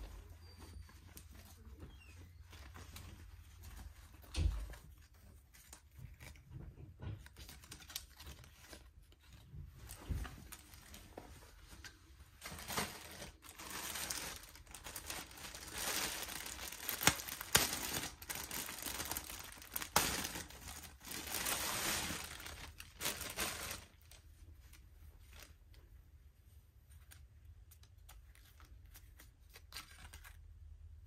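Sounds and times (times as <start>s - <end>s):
plastic bag crinkling: 12.4s - 25.5s.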